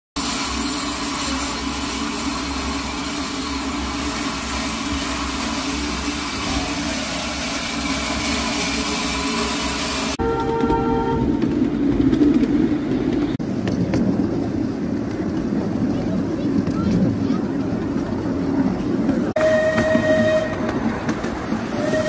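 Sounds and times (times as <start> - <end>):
steam hissing from locomotive: 0.2 - 10.2.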